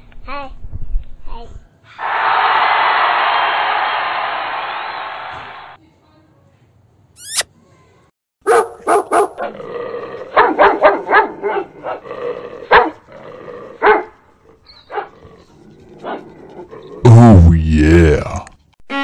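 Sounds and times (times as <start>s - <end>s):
puppies growling: 9.4s - 17.0s.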